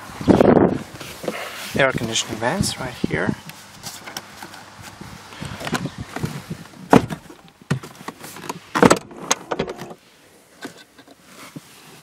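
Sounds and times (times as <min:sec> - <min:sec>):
knocks and thumps in car: 0:05.6 - 0:10.0.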